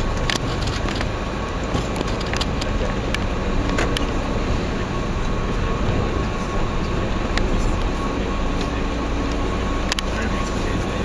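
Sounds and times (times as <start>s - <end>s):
minibus engine and road rumble: 0.0s - 11.0s
light clicks and rattles: 0.1s - 4.1s.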